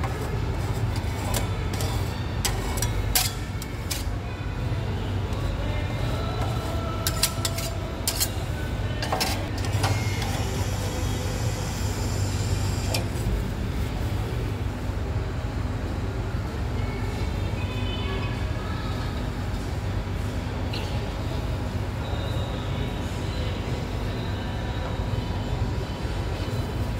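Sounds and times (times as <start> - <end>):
metal spatulas scraping metal plate: 0.8 - 4.1, 7.0 - 8.4.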